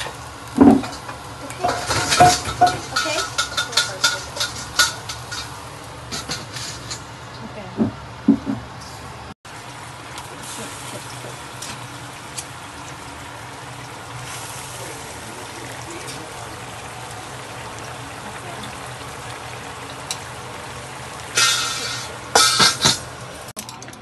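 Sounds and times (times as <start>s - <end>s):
sauce simmering and bubbling: 9.5s - 23.5s.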